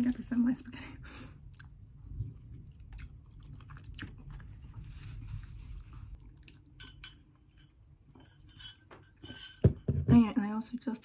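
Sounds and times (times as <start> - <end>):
wet chewing mouth sounds: 1.4 - 4.8.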